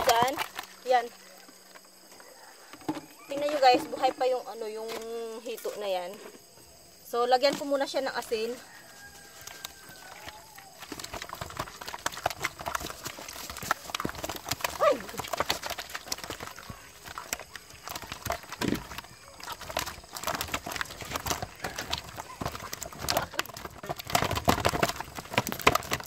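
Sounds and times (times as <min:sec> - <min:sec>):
fish slapping against plastic: 0:00.0 - 0:00.9, 0:07.5 - 0:26.0
small water splashes: 0:00.0 - 0:01.8, 0:09.2 - 0:26.0.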